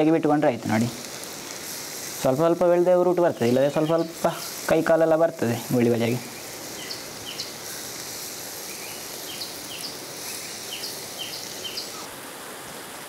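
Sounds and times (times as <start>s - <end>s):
oil sizzling: 0.0s - 13.0s
bird chirping: 3.3s - 4.6s, 6.1s - 7.9s, 8.6s - 12.1s.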